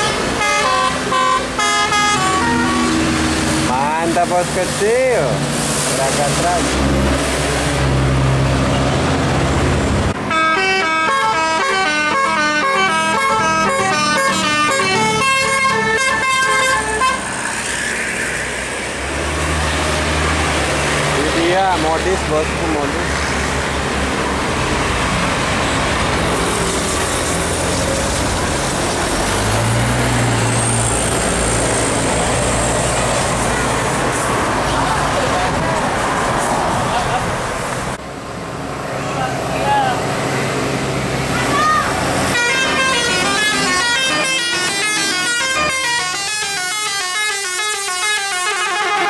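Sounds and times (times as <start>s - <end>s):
musical bus horn playing a tune: 0.0s - 3.2s, 10.2s - 17.3s, 42.3s - 49.0s
bus engine drone: 0.0s - 49.0s
road traffic: 0.0s - 49.0s.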